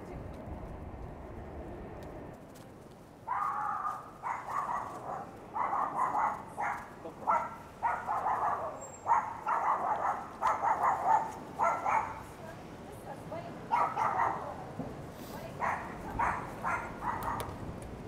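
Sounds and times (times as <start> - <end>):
dog barking: 3.3 - 12.3, 13.7 - 14.6, 15.6 - 17.5.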